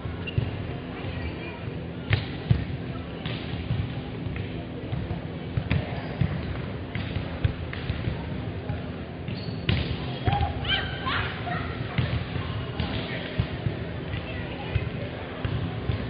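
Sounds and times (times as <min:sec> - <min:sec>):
murmur of voices: 0:00.0 - 0:16.0
volleyballs thudding: 0:02.1 - 0:10.6, 0:11.8 - 0:16.0
shoe squeaks on court: 0:09.3 - 0:09.8.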